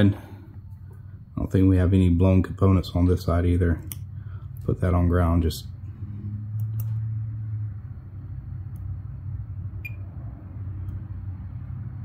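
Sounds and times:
low room hum: 0.0 - 12.0
multimeter beep: 9.8 - 10.1.

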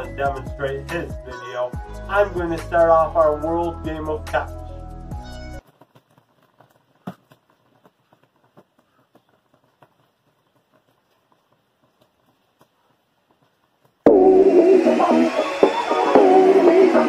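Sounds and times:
background hiss: 5.6 - 17.0.

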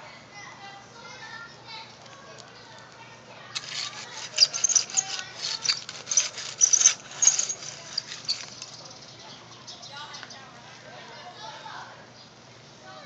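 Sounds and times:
hands rustling artificial turf: 3.6 - 8.8.

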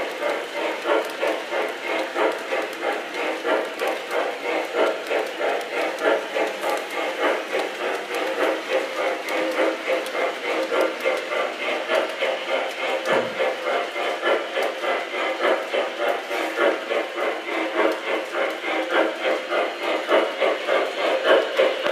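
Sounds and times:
model locomotive chuffing: 0.0 - 21.9
wheels rolling on track: 0.0 - 21.9.

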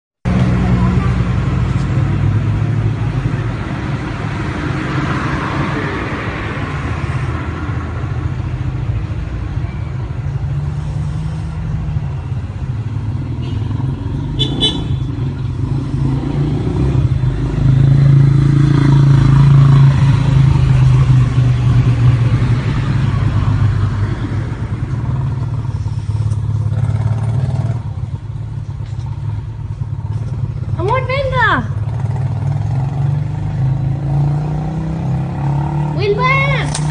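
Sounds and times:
traffic engine rumble: 0.2 - 36.9
sharp click: 36.6 - 36.9.

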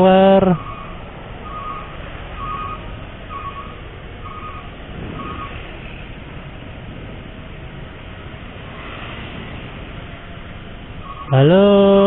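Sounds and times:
street traffic noise: 0.0 - 12.0
electronic two-tone beeps: 0.6 - 5.6.

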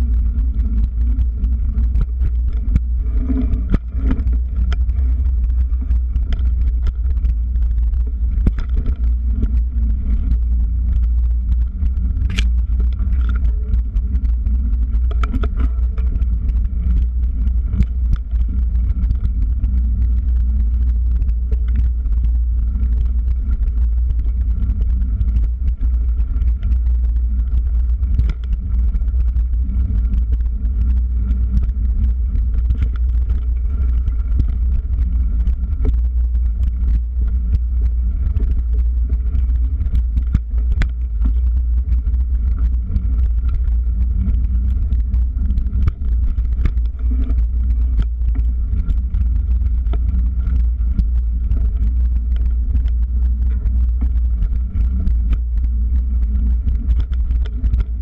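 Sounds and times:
bike clicks and rattles: 11.8 - 22.2.

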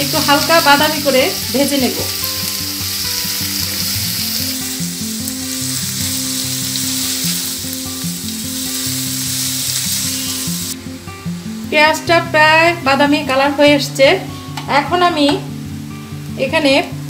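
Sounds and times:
onions sizzling in a frying pan: 0.0 - 17.0
soft background music: 0.0 - 17.0.

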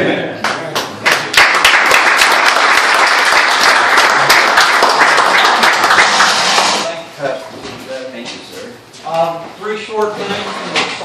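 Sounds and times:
audience applauding: 0.5 - 6.9.

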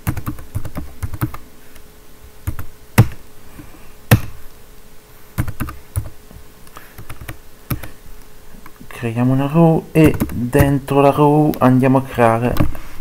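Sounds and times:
keyboard typing: 0.0 - 1.4, 5.4 - 6.1, 7.0 - 8.0, 10.0 - 10.8.

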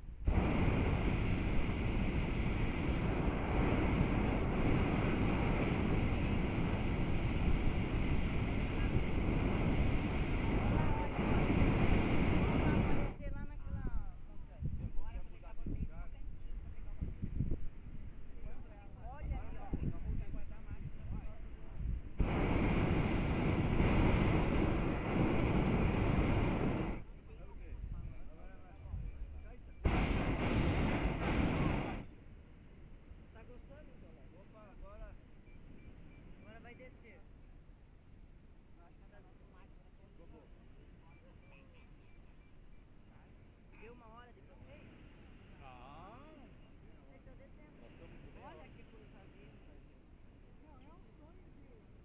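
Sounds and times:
propane burner blast: 0.0 - 13.3, 19.7 - 27.1, 29.8 - 33.9.

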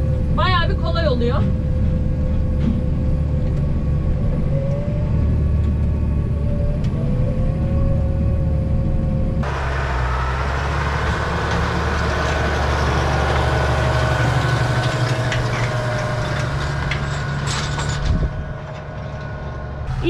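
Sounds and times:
tractor engine running: 0.0 - 20.0
harrow rushing over dry soil: 9.4 - 20.0.

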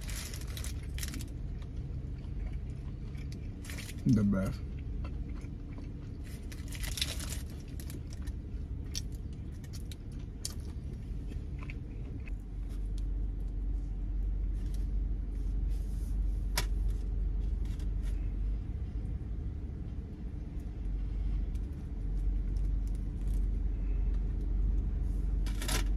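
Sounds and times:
paper wrapper crinkling: 0.0 - 1.4, 6.3 - 8.4
low vehicle rumble: 0.0 - 25.9.

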